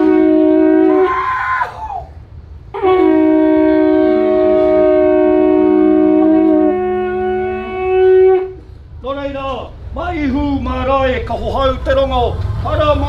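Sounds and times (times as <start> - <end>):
long wooden trumpet call: 0.0 - 8.8.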